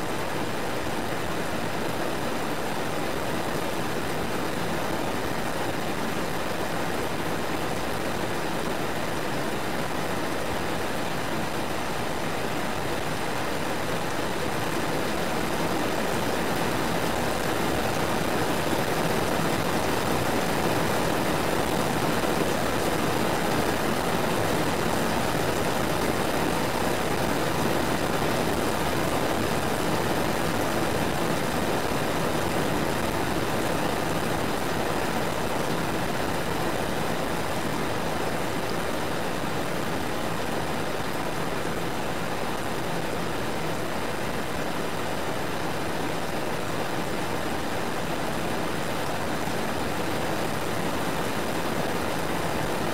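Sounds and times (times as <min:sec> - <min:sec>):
steady rain hiss: 0:00.0 - 0:52.9.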